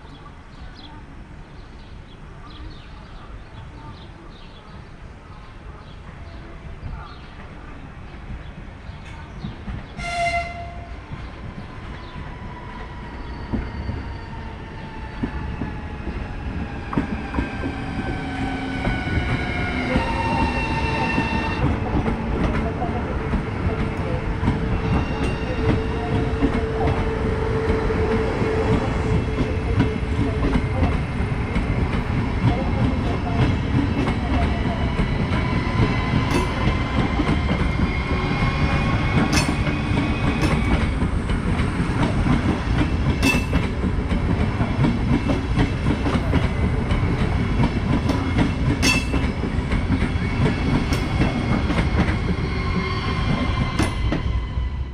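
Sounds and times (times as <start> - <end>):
train wheels rumbling on rails: 6.0 - 54.9.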